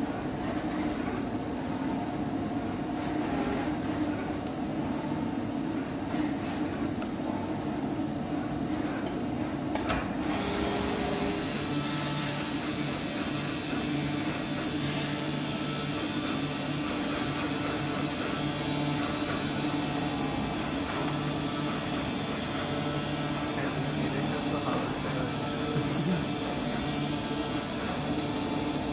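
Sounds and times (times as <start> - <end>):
cutting machine running: 10.2 - 28.9.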